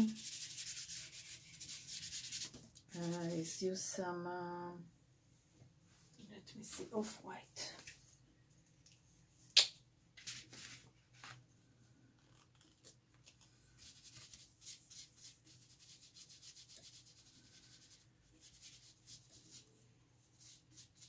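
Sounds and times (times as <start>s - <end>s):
paintbrush scrubbing on paper: 0.0s - 3.5s, 13.8s - 21.0s.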